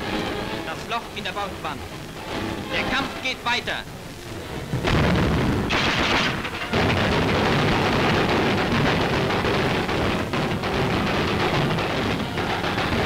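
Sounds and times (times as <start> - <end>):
anti-aircraft guns firing rapidly: 4.8 - 13.0.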